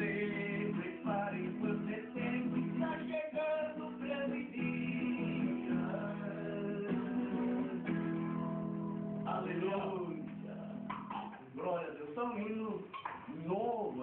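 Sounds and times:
acoustic guitar strummed and picked: 0:00.0 - 0:11.8.

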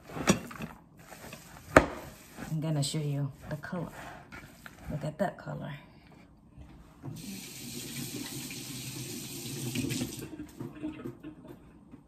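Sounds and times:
tap water running: 0:07.1 - 0:11.4
hands rinsed under tap: 0:07.2 - 0:10.3.

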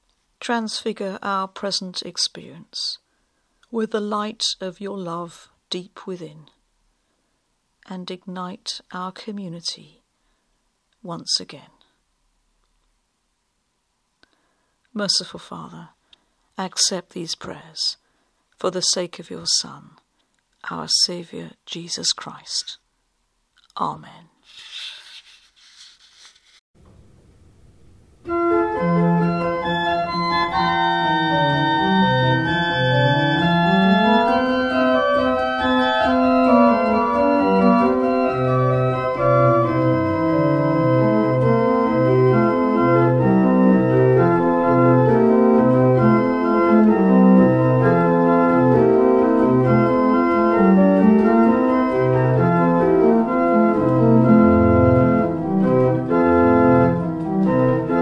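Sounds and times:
low organ bass line: 0:27.0 - 0:58.0
church organ chords: 0:27.7 - 0:58.0.

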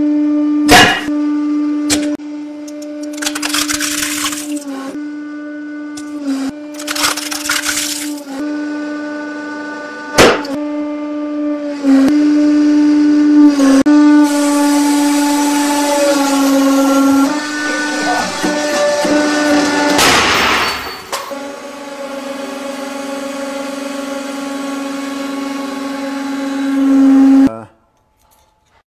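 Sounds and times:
hydraulic pump humming: 0:01.8 - 0:27.5.

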